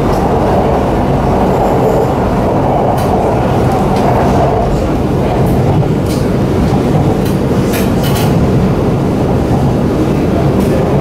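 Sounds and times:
train wheels rumbling on rail: 0:00.0 - 0:11.0.

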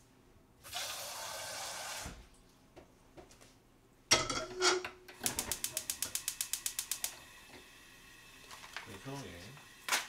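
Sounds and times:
gas stove igniter clicking: 0:05.2 - 0:07.2.

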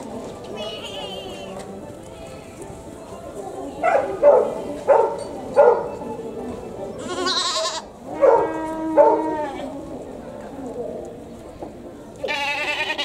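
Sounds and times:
goats bleating: 0:07.0 - 0:07.9, 0:12.2 - 0:13.0.

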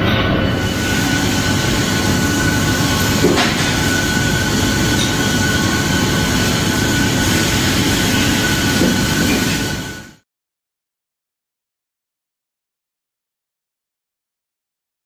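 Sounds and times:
band saw cutting metal: 0:00.1 - 0:10.2.

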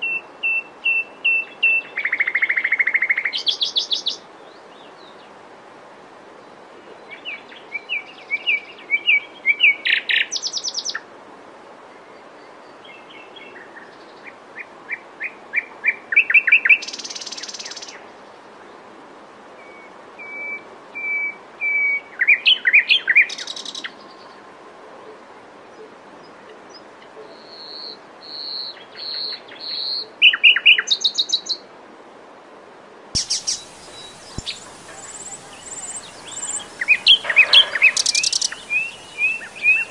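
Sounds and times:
nightingale singing: 0:27.4 - 0:31.6, 0:33.2 - 0:39.9.

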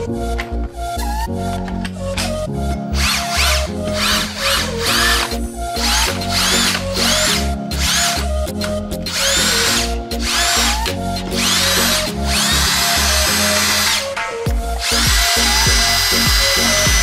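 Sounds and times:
cordless drill motor whining: 0:03.0 - 0:17.0.

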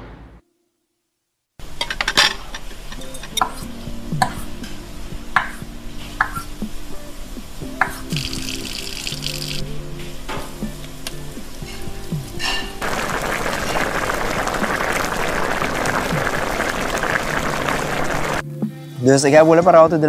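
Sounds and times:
background music: 0:02.7 - 0:20.0
oil sizzling on griddle: 0:07.6 - 0:09.7, 0:10.8 - 0:18.4.

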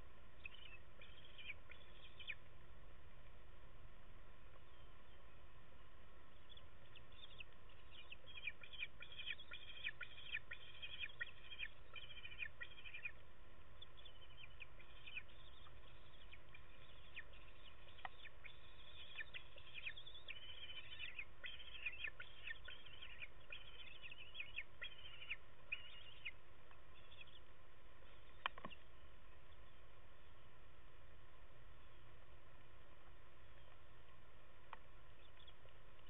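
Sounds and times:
eaglets chirping: 0:00.4 - 0:02.5, 0:06.3 - 0:28.8.

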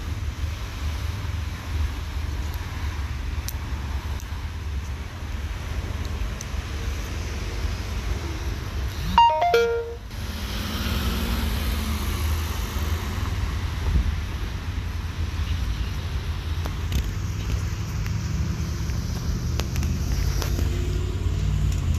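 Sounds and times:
electronic chime falling notes: 0:09.2 - 0:10.1.

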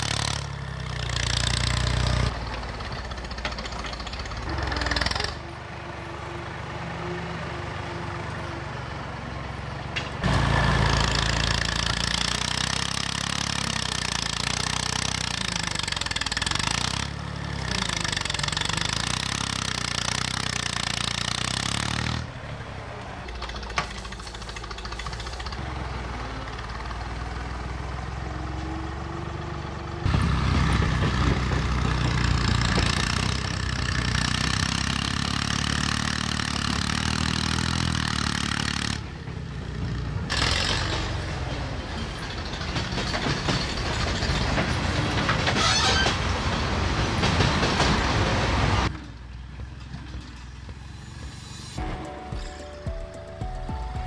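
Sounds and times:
backhoe engine under load: 0:00.0 - 0:54.0.

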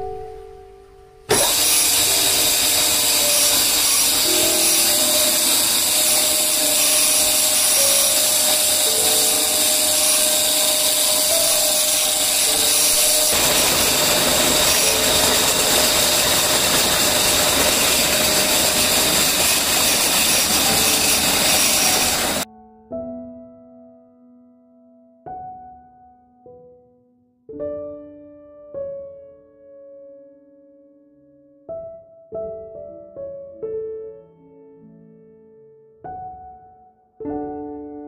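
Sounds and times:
motor pump whining: 0:01.3 - 0:22.5.

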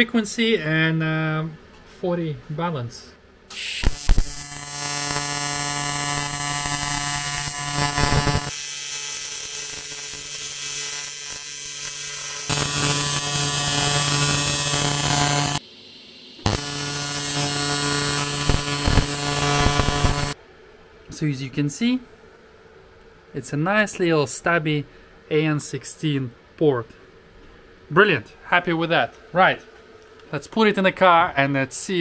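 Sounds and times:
welding arc buzzing: 0:03.5 - 0:15.6, 0:16.2 - 0:20.4.

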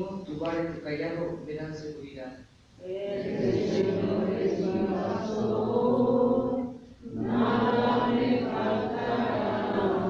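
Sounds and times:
voices singing slow held notes: 0:02.8 - 0:10.0.

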